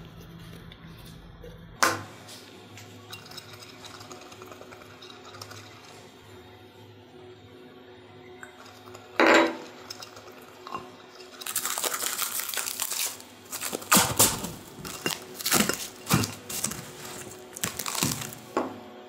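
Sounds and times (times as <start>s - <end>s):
cling film crinkling: 11.2s - 18.6s.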